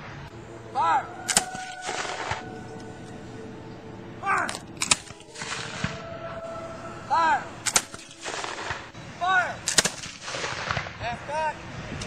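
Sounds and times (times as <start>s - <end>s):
muskets firing: 1.3s - 2.4s, 4.5s - 6.0s, 7.6s - 9.0s, 9.7s - 11.0s.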